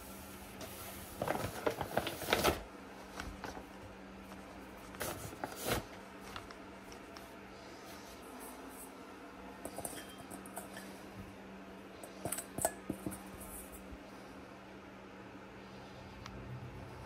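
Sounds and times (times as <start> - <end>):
flour rustling and pattering: 0.0 - 9.0.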